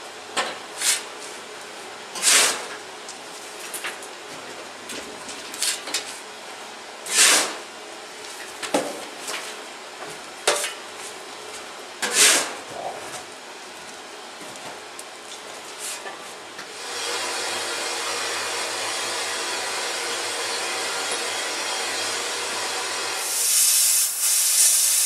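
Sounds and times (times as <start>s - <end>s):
steam hisses: 16.8s - 25.0s.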